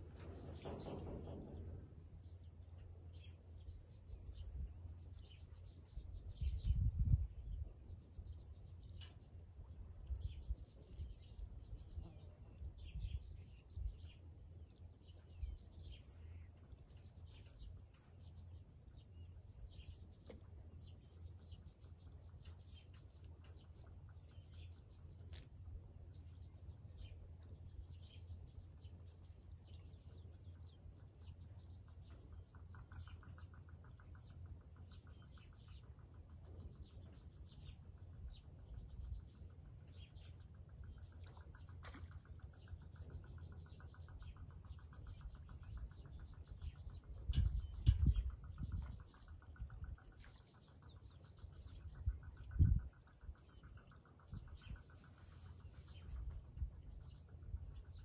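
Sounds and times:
small birds chirping: 0.0s - 58.0s
wind rumble on microphone: 3.1s - 14.3s, 15.0s - 18.0s, 34.9s - 42.1s, 43.0s - 58.0s.

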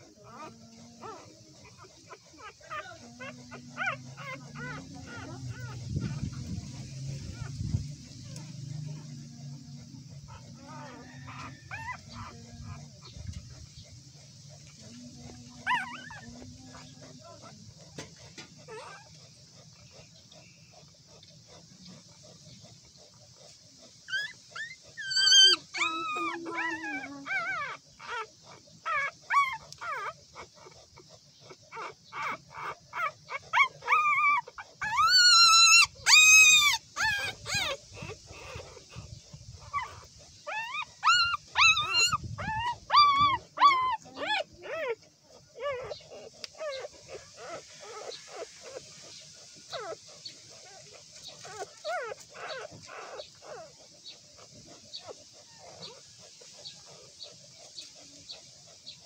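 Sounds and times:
puppy squealing: 0.0s - 7.5s, 10.3s - 13.1s, 15.2s - 18.0s, 18.6s - 19.2s, 24.1s - 30.8s, 31.7s - 48.8s, 49.6s - 53.8s
puppies squeaking and whining: 0.0s - 59.0s.

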